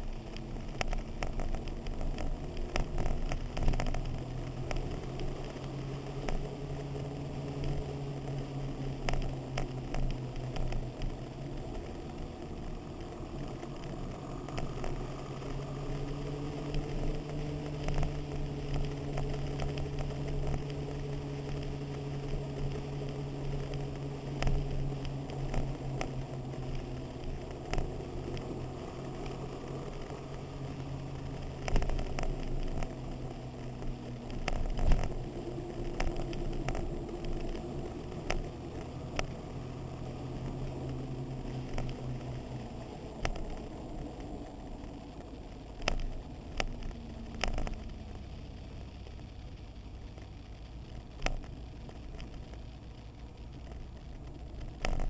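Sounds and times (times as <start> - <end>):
motorcycle engine cruising: 0.0 - 49.4
wind crackle on microphone: 0.0 - 55.0.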